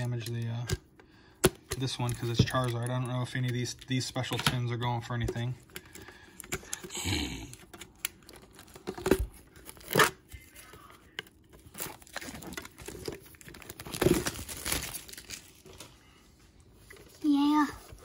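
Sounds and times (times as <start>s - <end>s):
plastic shrink-wrap tearing: 11.6s - 15.8s.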